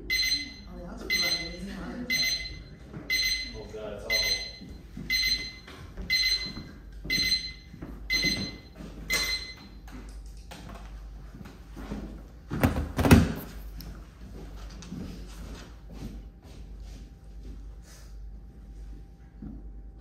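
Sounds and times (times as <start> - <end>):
electronic timer alarm beeping: 0.0 - 9.8.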